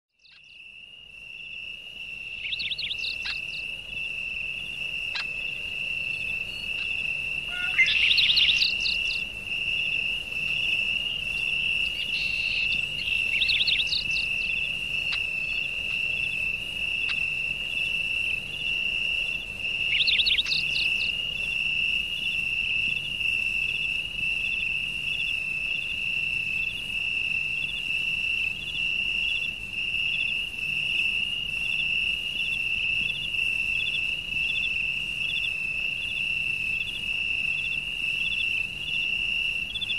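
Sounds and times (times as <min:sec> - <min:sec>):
insect trilling: 0:00.2 - 0:39.9
high chirps: 0:02.3 - 0:23.8.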